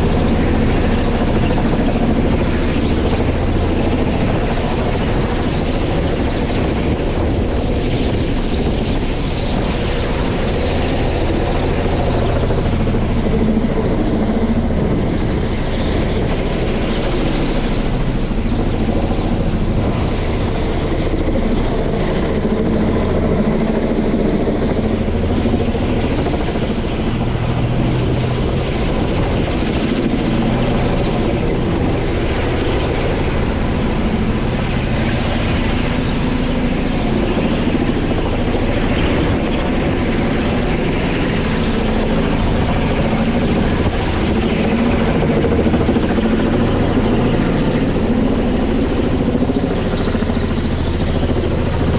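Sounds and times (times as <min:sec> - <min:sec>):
helicopter passing overhead: 0:00.0 - 0:51.9.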